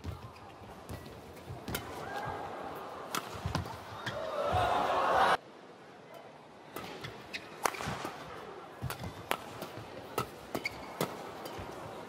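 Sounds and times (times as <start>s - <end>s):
rackets striking shuttlecock: 6.8s - 11.9s.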